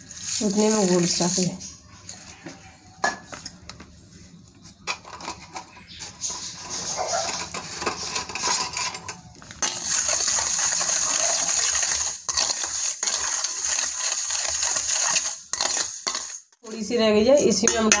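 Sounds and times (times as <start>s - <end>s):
spoon scraping metal bowl: 4.8s - 16.6s.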